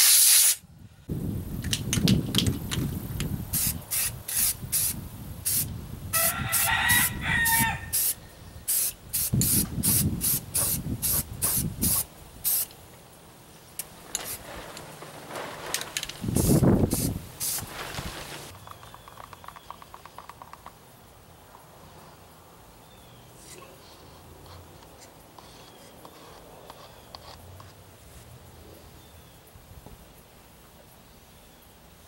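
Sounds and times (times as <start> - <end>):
spray paint can hissing: 0.0 - 0.6, 3.5 - 12.8, 16.2 - 17.7
rooster crowing: 6.1 - 8.1.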